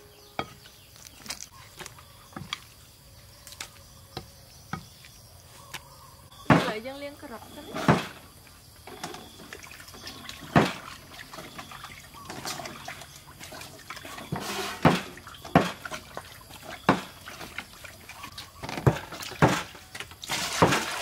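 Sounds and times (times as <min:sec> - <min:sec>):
water splashing in a metal basin: 0:06.4 - 0:21.0
sharp knocks: 0:07.7 - 0:08.2, 0:14.5 - 0:15.8.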